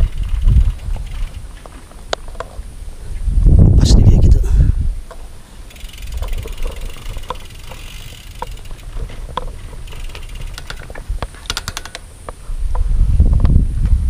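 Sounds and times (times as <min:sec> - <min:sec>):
bicycle freewheel ratchet clicking: 0:00.0 - 0:01.8, 0:05.2 - 0:12.4.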